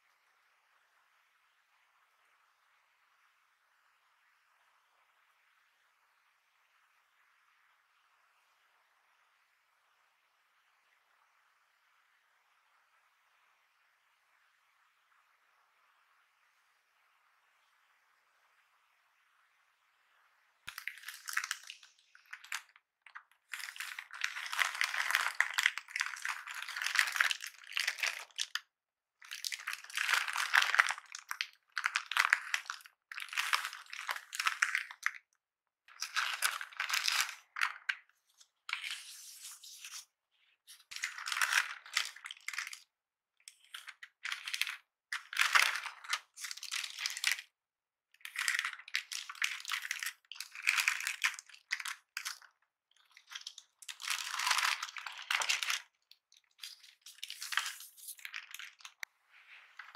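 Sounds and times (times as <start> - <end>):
plastic bag crinkling: 20.7 - 28.6, 29.3 - 35.2, 35.9 - 38.0, 40.7 - 42.8, 43.7 - 47.4, 48.3 - 52.5, 53.1 - 55.9, 56.5 - 59.0
tissue paper rustling: 53.4 - 55.8, 56.6 - 59.9.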